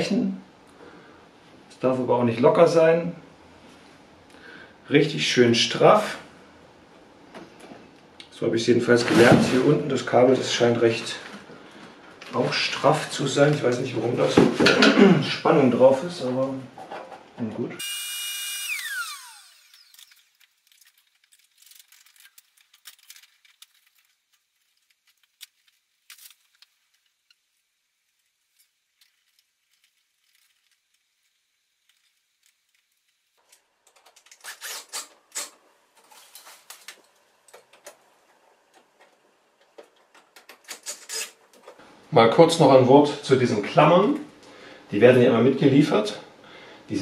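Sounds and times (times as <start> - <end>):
cordless drill winding down: 17.8 - 20.3.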